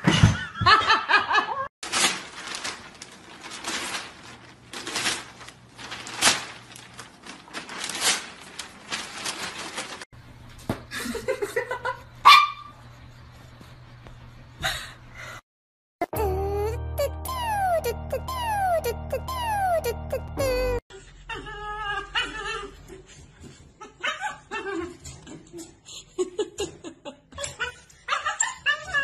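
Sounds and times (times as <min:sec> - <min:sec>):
newspaper rustling and crackling: 0:01.8 - 0:10.1
dog barking: 0:12.2 - 0:12.7
small dog whining: 0:17.0 - 0:22.8.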